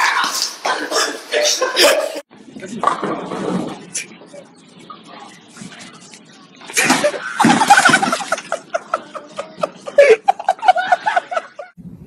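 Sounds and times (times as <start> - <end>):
people laughing hard: 6.8 - 11.8.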